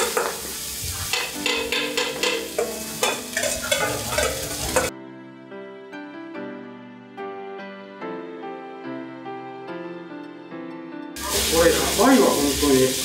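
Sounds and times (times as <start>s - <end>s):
food sizzling: 0.0s - 4.9s, 11.2s - 13.0s
ladle clanking and scraping in wok: 0.0s - 4.9s
soft background music: 0.0s - 13.0s.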